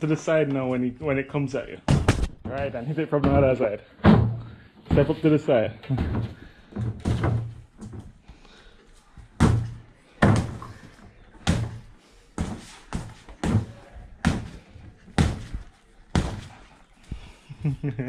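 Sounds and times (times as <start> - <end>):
boxing gloves punching a bag: 11.4 - 16.6.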